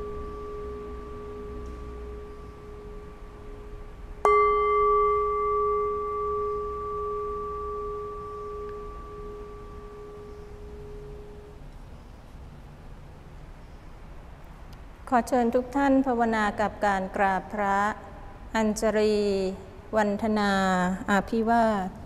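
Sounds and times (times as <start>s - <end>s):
metal bell ringing: 4.2s - 11.4s.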